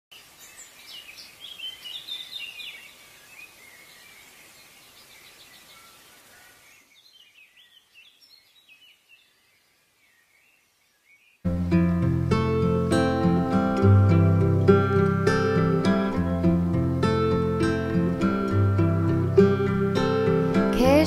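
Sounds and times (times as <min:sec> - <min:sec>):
background hiss: 0:00.1 - 0:21.0
birds chirping and singing: 0:00.3 - 0:11.4.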